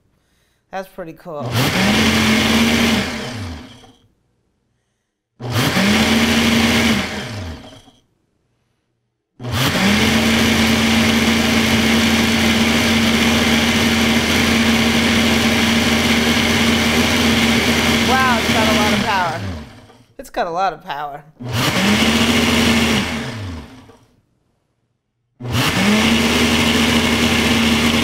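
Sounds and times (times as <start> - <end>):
blender motor pulsing: 1.4 - 4.0, 5.4 - 8.0, 9.4 - 20.2, 21.4 - 24.1, 25.4 - 28.0.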